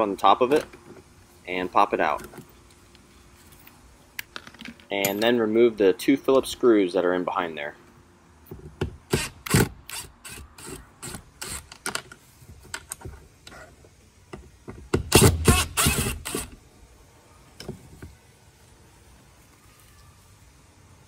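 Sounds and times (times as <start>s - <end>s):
cordless drill running in bursts: 15.1s - 16.6s.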